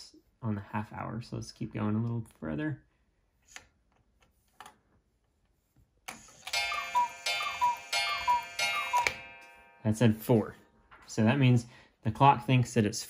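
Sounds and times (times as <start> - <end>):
cuckoo clock striking: 6.1 - 10.2
clock hand clicks: 6.4 - 9.2.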